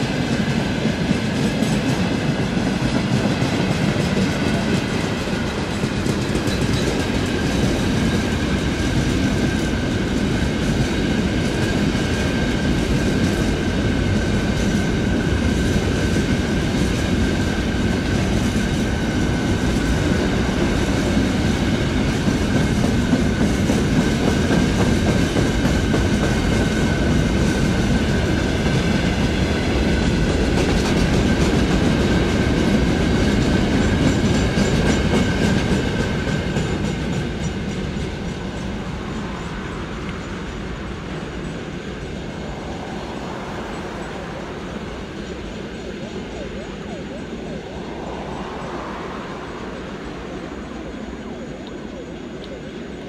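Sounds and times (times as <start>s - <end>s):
train wheels rumbling over rails: 0.0s - 53.0s
thin steady whine: 37.1s - 53.0s.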